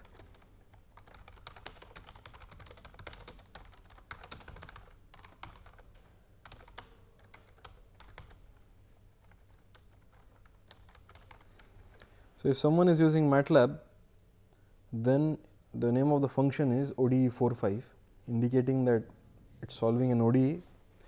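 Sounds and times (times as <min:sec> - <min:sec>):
typing on computer keyboard: 0:00.0 - 0:08.4, 0:09.2 - 0:11.7.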